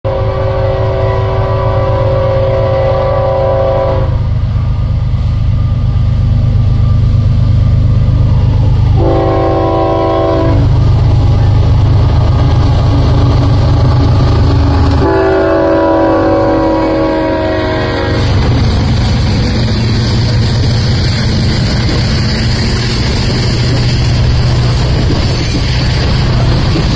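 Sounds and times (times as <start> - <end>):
train horn blasts: 0.1 - 4.3, 9.0 - 10.8, 14.9 - 18.6
locomotive rumble: 0.1 - 26.9.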